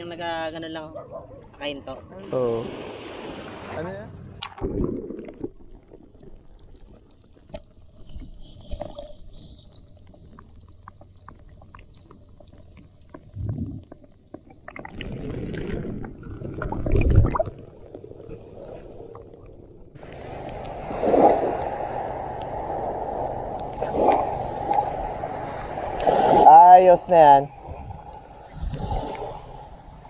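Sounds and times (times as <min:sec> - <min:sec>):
water sloshing and splashing: 0:02.6 - 0:29.8
muffled underwater clicks: 0:04.4 - 0:15.0.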